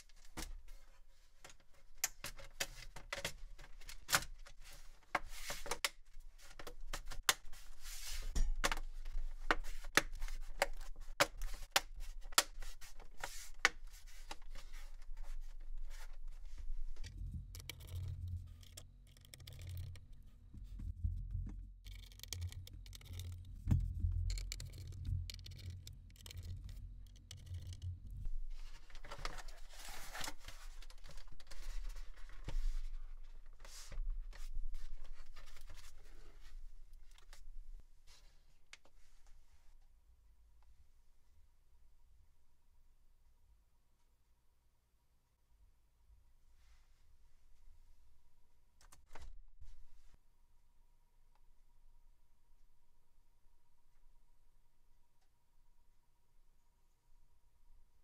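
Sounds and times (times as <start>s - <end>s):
low steady hum: 15.1s - 31.2s.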